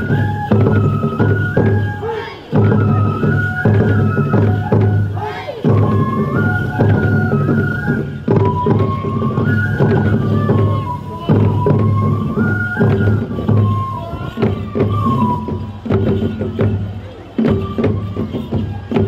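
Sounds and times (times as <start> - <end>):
bamboo flute melody: 0.0 - 19.0
taiko drum strikes: 2.5 - 10.7.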